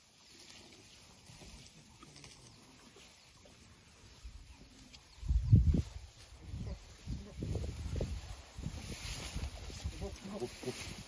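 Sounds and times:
rustling and tearing of grass: 4.3s - 11.0s.

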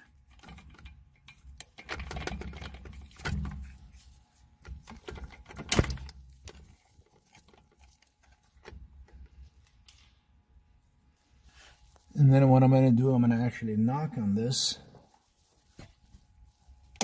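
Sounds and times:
hand tools and metal parts clattering: 0.0s - 10.1s.

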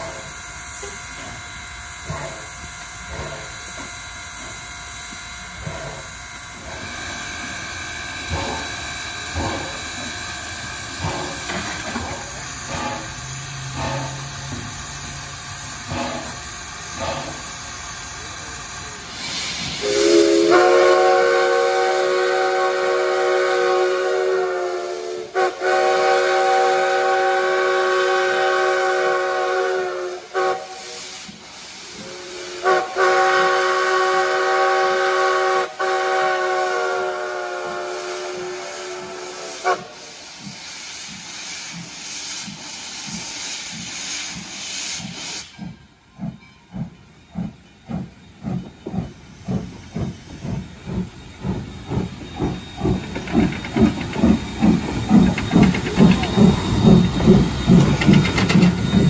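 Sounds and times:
steam hissing: 0.0s - 59.0s
steam locomotive puffs: 0.0s - 59.0s
steam whistle blasts: 19.2s - 43.0s.

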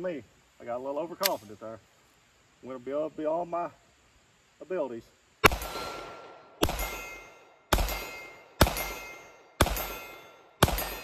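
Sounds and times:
pistol shots: 5.4s - 11.0s
steel target plate ringing: 5.6s - 11.0s.

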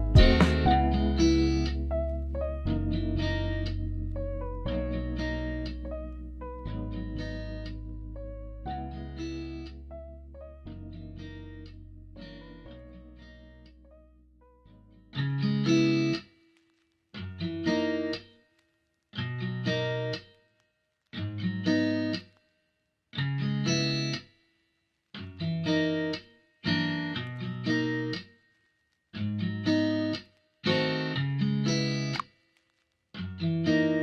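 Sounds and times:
guitar chords: 0.0s - 16.2s, 29.2s - 32.2s, 33.2s - 34.0s.

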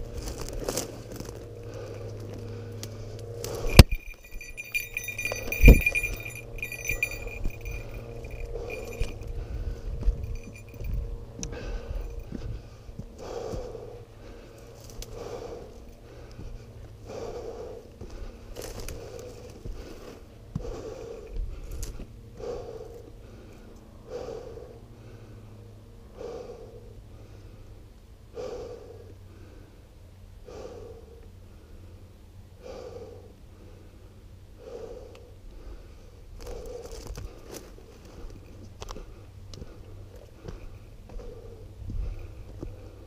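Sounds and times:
footsteps on brushy ground: 0.0s - 17.0s, 17.8s - 22.2s, 36.4s - 43.0s
person breathing hard: 0.2s - 43.0s.

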